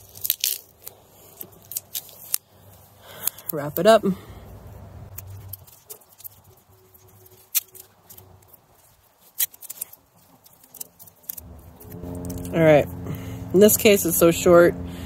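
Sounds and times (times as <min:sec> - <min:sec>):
tape handling rustles: 0:00.0 - 0:03.9, 0:05.1 - 0:13.1.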